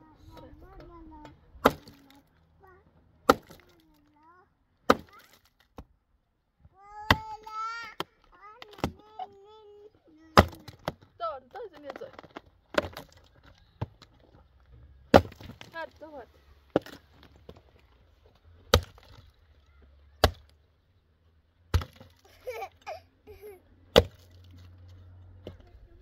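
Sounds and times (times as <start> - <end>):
axe chopping log: 1.6 - 2.1, 3.2 - 3.8, 4.8 - 5.9, 10.4 - 11.0, 12.7 - 13.2, 15.1 - 15.8, 16.7 - 17.6, 18.7 - 19.3, 20.2 - 20.6, 21.7 - 22.2, 23.9 - 24.5.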